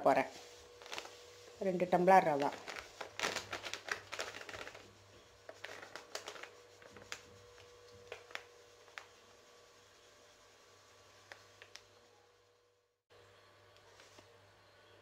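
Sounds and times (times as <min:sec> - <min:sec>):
plastic packet crinkling: 0:00.7 - 0:01.2, 0:02.2 - 0:04.9, 0:05.5 - 0:07.3, 0:08.0 - 0:09.1.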